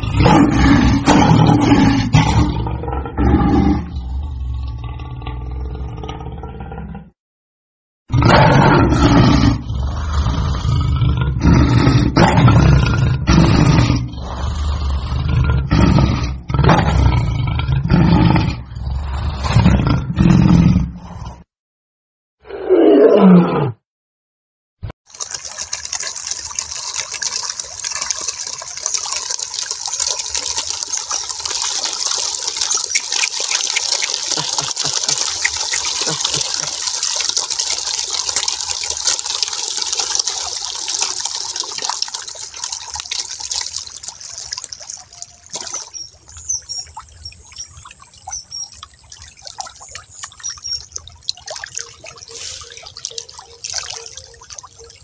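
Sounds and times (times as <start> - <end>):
clicks drips and high blips: 25.1 - 55.0
underwater hissing rush: 52.3 - 52.8.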